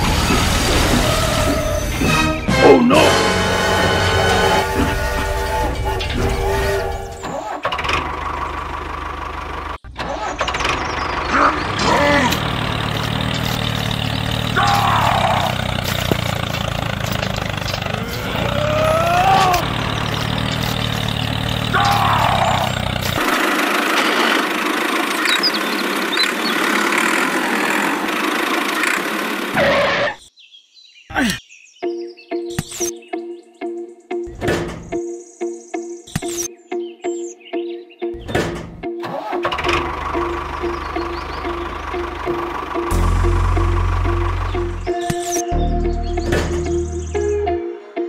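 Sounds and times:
squeaky sliding tones: 0:00.0 - 0:02.4, 0:03.4 - 0:08.1, 0:10.0 - 0:23.3
tractor engine rumbling: 0:00.0 - 0:30.2, 0:38.2 - 0:47.3.

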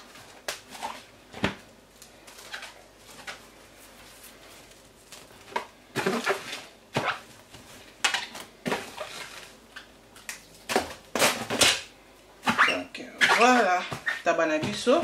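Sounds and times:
plastic cling film crinkling: 0:01.8 - 0:11.9.

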